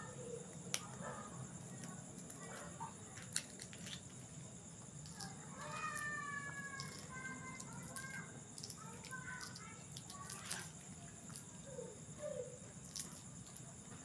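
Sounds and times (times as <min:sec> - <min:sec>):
eggshell cracking clicks: 0:05.0 - 0:11.5, 0:12.8 - 0:13.7.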